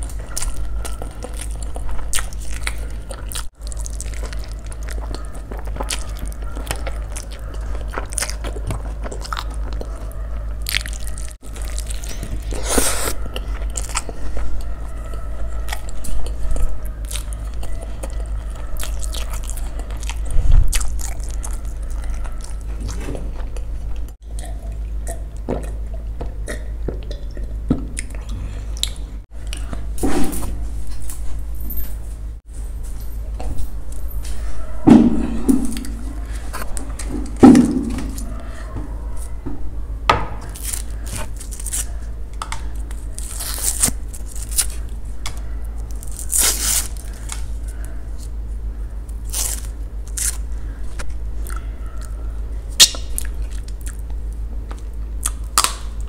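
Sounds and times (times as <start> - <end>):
person biting and chewing: 0.0 - 29.8, 40.2 - 48.4, 49.0 - 52.2, 52.8 - 56.0
steady low hum: 0.0 - 56.0
mouth clicks: 52.8 - 54.1.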